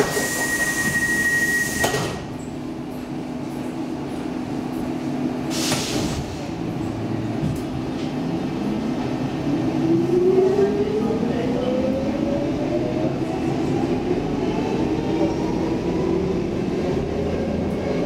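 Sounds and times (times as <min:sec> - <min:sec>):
subway car low hum: 0:00.0 - 0:18.0
air hiss: 0:05.5 - 0:06.4.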